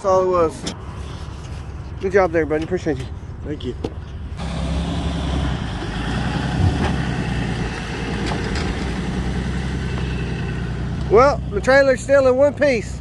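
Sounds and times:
engine running at low revs: 4.1 - 13.0.

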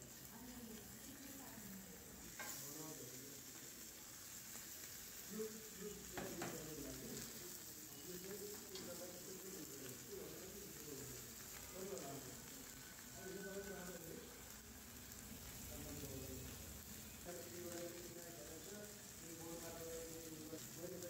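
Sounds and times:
food sizzling on grill pan: 0.0 - 21.0.

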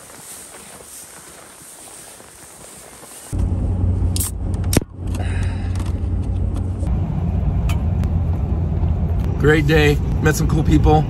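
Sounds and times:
truck engine and road hum: 2.2 - 11.0.

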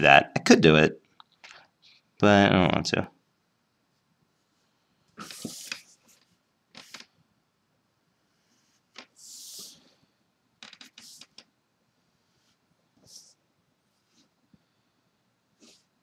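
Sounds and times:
hand sliding across paper: 5.2 - 7.1, 8.4 - 10.0
paper rustling: 5.2 - 7.1.

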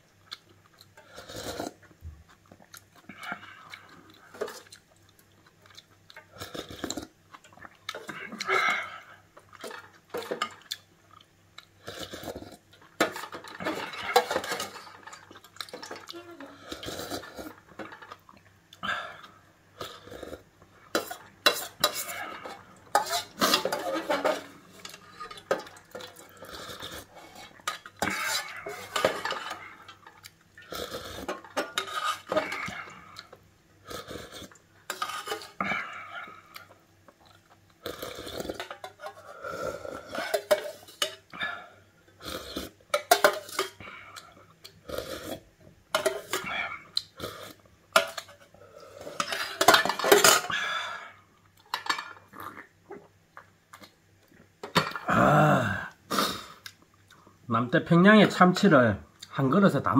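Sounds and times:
metal spoon scraping a pot: 13.0 - 15.2, 20.9 - 26.1, 26.7 - 30.1, 31.0 - 32.7, 34.9 - 35.6, 47.3 - 50.5.

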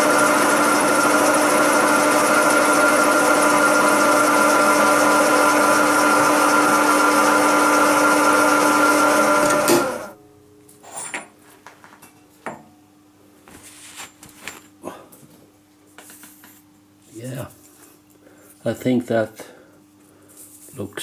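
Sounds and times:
milling machine cutting metal: 0.0 - 10.1.

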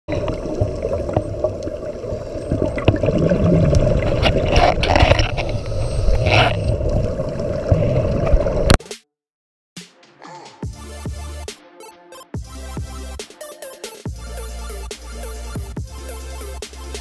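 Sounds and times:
diver's exhaled bubbles gurgling: 0.1 - 8.8.

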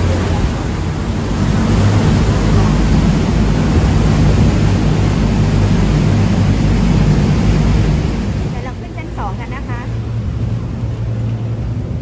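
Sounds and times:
boat engine droning: 0.0 - 12.0
rushing water and wind: 0.0 - 12.0.

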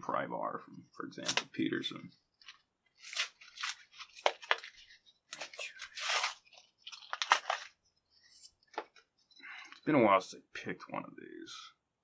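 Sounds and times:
plastic packaging crinkling and tearing: 3.0 - 7.7.

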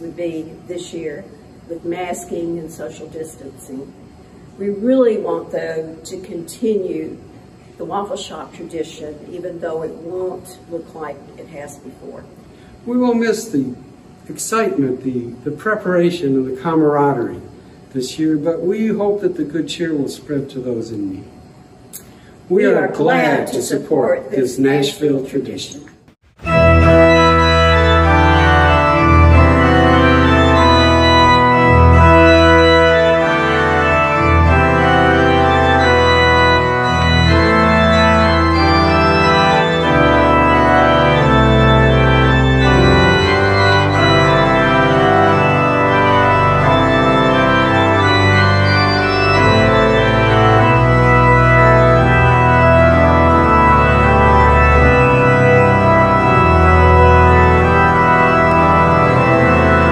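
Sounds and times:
organ chords: 0.0 - 25.2, 26.2 - 59.9
low sustained bass notes: 26.4 - 59.9.

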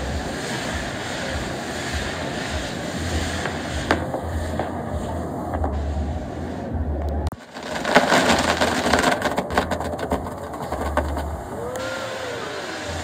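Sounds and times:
fireworks fountains hissing: 0.0 - 13.0
rapid crackling pops: 7.3 - 11.9.

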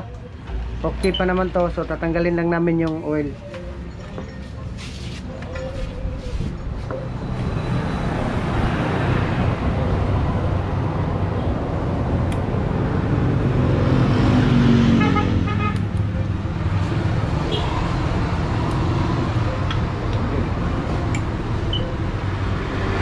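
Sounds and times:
vehicle passing by: 7.1 - 23.0.

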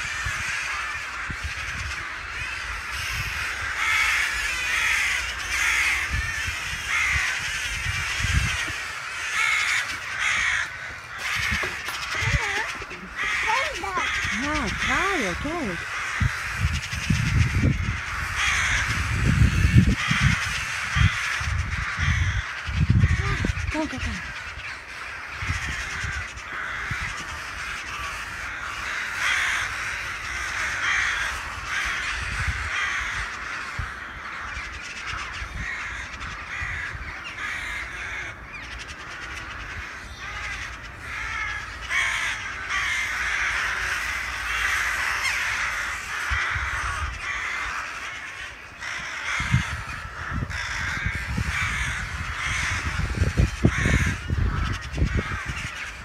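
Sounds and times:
crows calling: 0.0 - 56.0.

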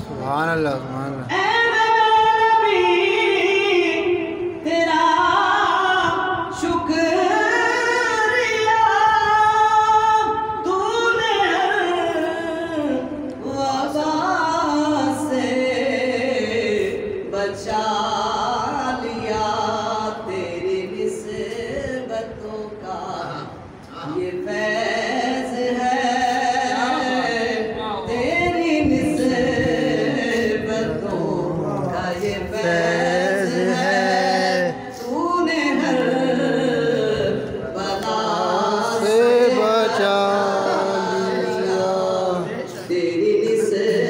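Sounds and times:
man singing into a microphone: 17.7 - 44.0.

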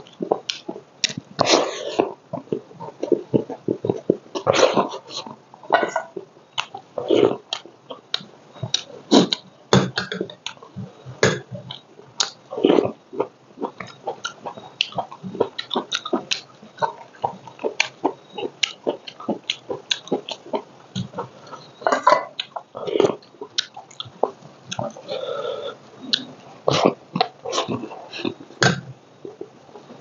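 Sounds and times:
wet chewing: 0.0 - 30.0.

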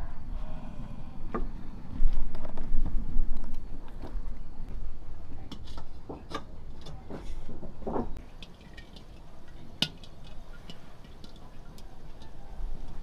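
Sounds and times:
fat crackling in a pan: 7.9 - 13.0.

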